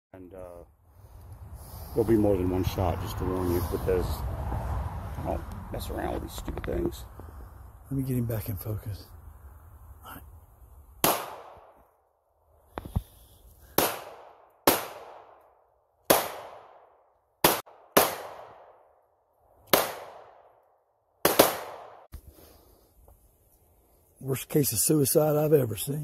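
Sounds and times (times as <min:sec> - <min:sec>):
pistol shots: 0:11.0 - 0:11.8, 0:13.8 - 0:15.4, 0:16.1 - 0:18.8, 0:19.7 - 0:20.5, 0:21.2 - 0:22.1.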